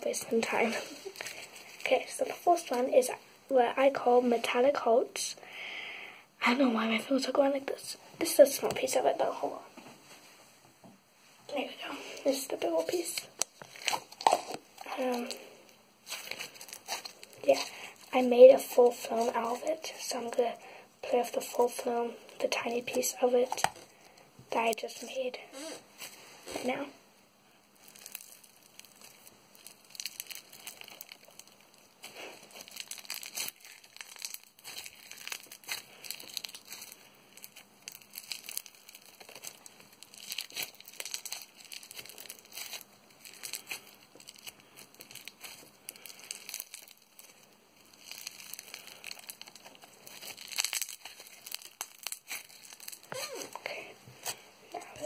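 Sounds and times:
slime squeezed by hand: 12.7s - 15.4s, 16.0s - 17.8s, 27.8s - 53.6s.

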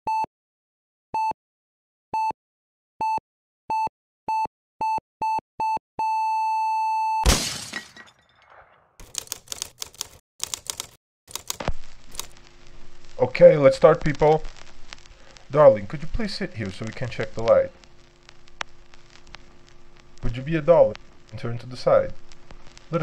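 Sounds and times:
glass shattering crash: 7.2s - 8.9s
typewriter key clacks: 9.0s - 11.7s.

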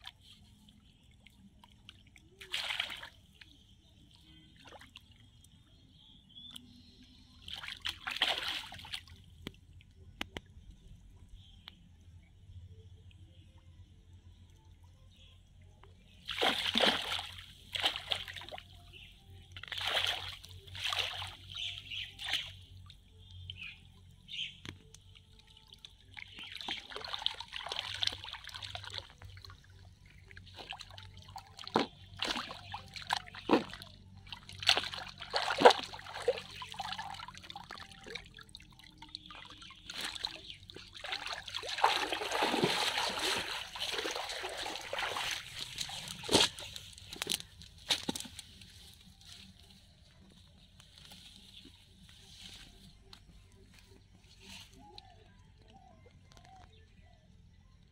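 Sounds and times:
water splashing and sloshing: 0.0s - 5.6s, 7.3s - 10.7s, 16.0s - 55.8s
fish thrashing in net: 16.3s - 18.4s, 41.0s - 48.4s
water trickling: 24.3s - 48.2s.

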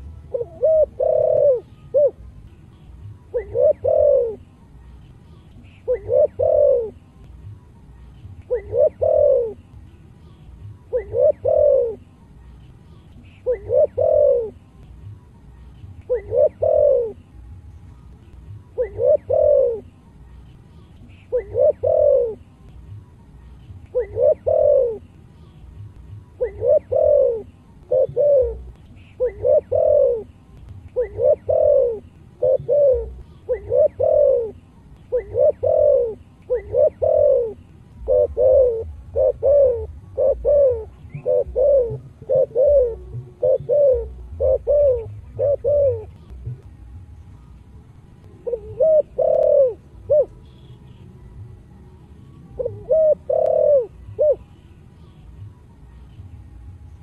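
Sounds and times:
dove cooing: 0.0s - 2.4s, 3.0s - 7.6s, 8.2s - 9.8s, 10.6s - 14.8s, 16.1s - 17.4s, 18.5s - 22.6s, 23.4s - 46.6s, 48.3s - 51.0s, 52.5s - 54.6s.

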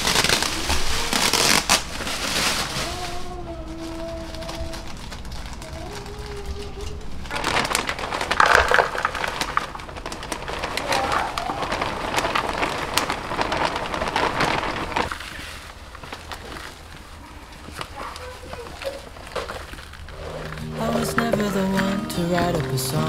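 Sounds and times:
plastic bag crinkling: 0.0s - 23.0s
soil pouring patter: 5.0s - 23.0s.

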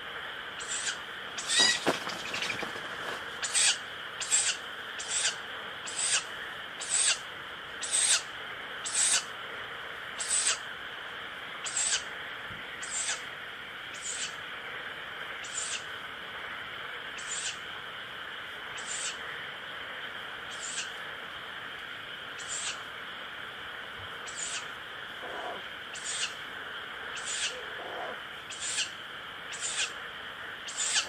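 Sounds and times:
owl chick hissing calls: 0.6s - 9.3s, 10.2s - 10.7s, 11.6s - 12.1s, 12.8s - 13.3s, 13.9s - 14.4s, 15.4s - 15.9s, 17.2s - 17.7s, 18.7s - 19.3s, 20.5s - 21.0s, 22.4s - 22.9s, 24.2s - 30.0s, 30.6s - 31.0s.

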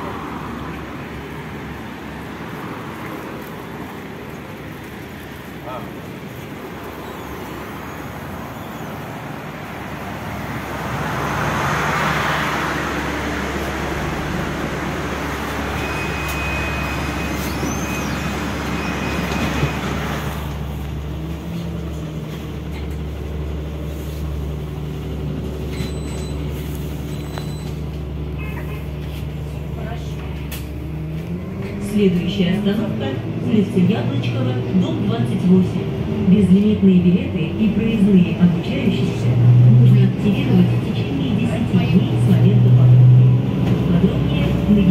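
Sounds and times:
bus drivetrain hum: 0.0s - 44.9s
road and traffic noise: 0.0s - 44.9s.

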